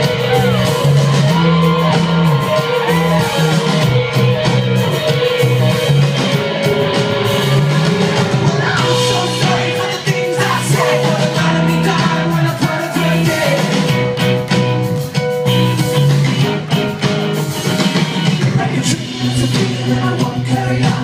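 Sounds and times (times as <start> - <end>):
live rock band playing: 0.0 - 21.0
person singing: 6.8 - 14.1, 18.2 - 21.0.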